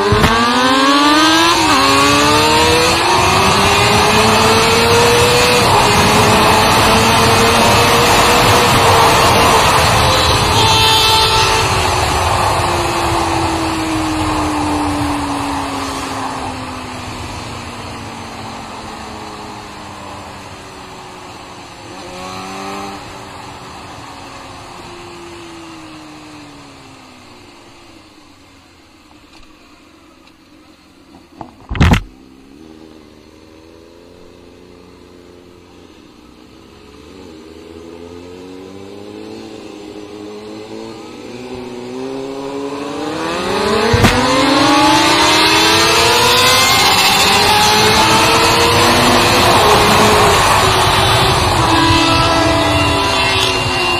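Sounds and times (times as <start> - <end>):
sharp thump: 0.0 - 0.5, 31.3 - 32.1, 43.8 - 44.4
motorcycle engine revving: 0.0 - 25.8, 31.4 - 53.9.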